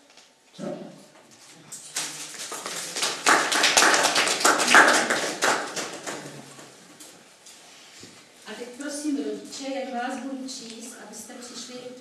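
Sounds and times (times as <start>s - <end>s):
audience applauding: 1.9s - 6.8s.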